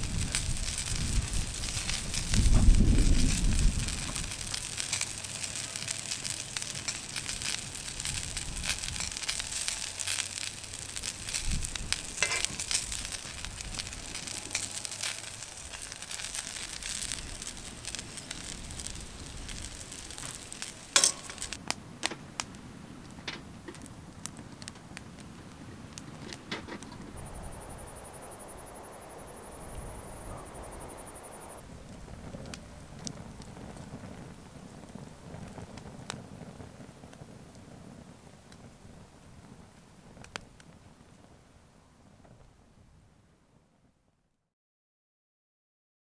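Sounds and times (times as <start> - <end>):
food sizzling in a frying pan: 0.0 - 21.6
metal tongs clicking on pan: 12.2 - 12.8, 21.0 - 21.6.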